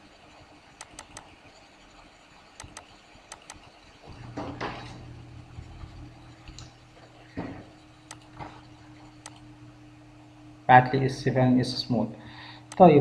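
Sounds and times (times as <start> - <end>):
faint low hum: 0.0 - 13.0
computer mouse clicks: 0.8 - 1.3, 2.6 - 3.7, 8.0 - 8.4, 9.1 - 9.5, 12.7 - 12.9.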